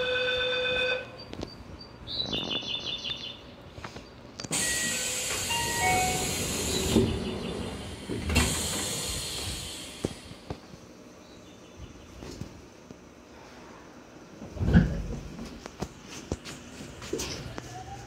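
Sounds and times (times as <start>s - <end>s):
train doors thudding shut: 4.5s - 10.3s
air hiss: 4.5s - 10.6s
pulsing door chime: 4.6s - 6.8s.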